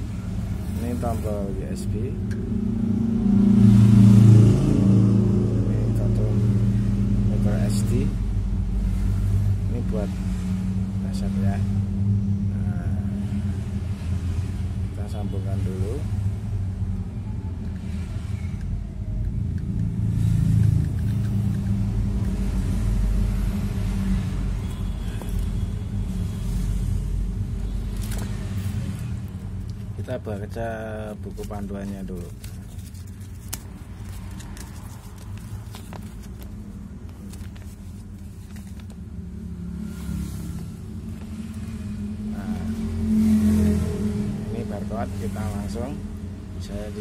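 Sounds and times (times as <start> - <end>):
low background rumble: 0.0 - 15.2, 15.8 - 47.0
paper crinkling and rustling: 27.7 - 39.3.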